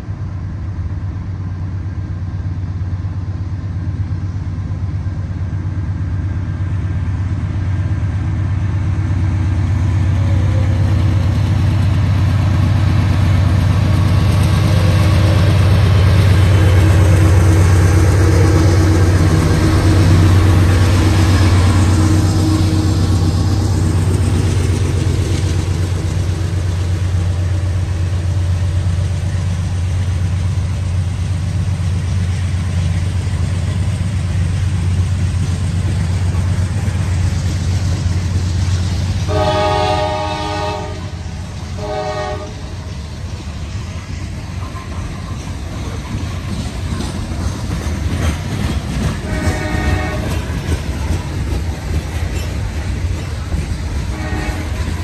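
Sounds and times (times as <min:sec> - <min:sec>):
diesel locomotive rumble: 0:00.0 - 0:55.0
train wheels on rails: 0:00.0 - 0:55.0
locomotive horn blasts: 0:39.3 - 0:41.2, 0:41.8 - 0:42.7, 0:49.2 - 0:50.5, 0:54.1 - 0:55.0.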